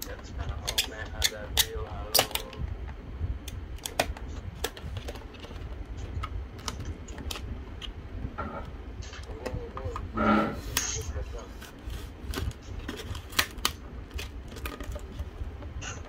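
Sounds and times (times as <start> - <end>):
plastic blister pack clicking: 0.6 - 2.6, 12.3 - 15.2.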